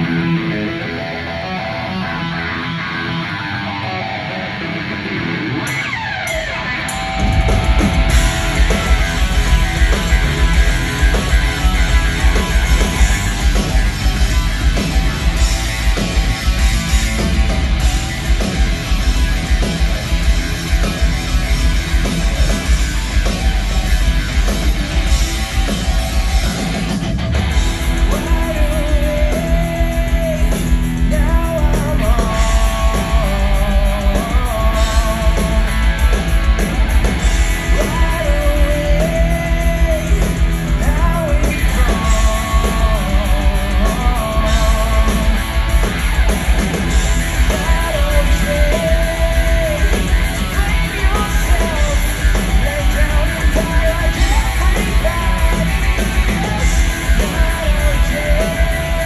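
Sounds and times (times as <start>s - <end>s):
live hard rock band: 0.0s - 59.0s
male lead vocal: 27.8s - 36.2s, 37.5s - 45.6s, 47.3s - 59.0s.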